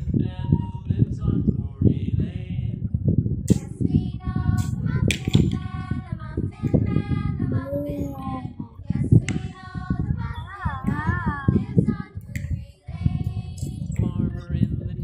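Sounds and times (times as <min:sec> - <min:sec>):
child singing: 0:03.5 - 0:14.7.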